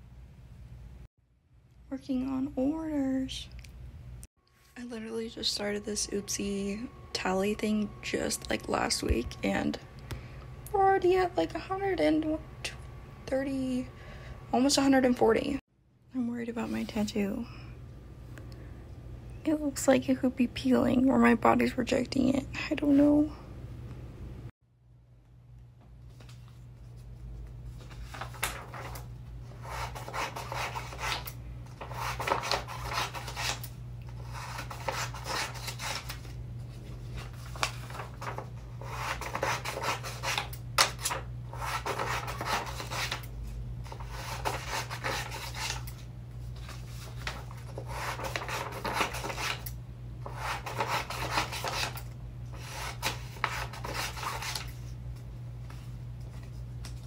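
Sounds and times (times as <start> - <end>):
steady low hum: 0.0 - 57.0
scissors cutting paper: 29.6 - 36.3, 37.2 - 46.0, 47.2 - 54.8.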